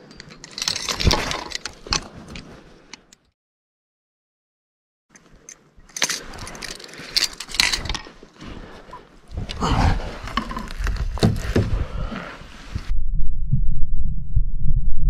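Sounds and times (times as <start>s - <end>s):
fishing gear clicking and rattling: 0.0s - 3.3s, 5.1s - 11.8s
low rumble: 9.5s - 15.0s.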